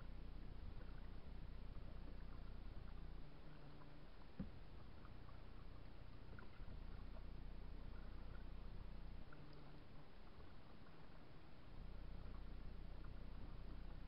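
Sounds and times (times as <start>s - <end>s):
steady low rumble: 0.0s - 14.0s
water lapping against hull: 0.0s - 14.0s
soft knock on hull: 4.2s - 4.9s.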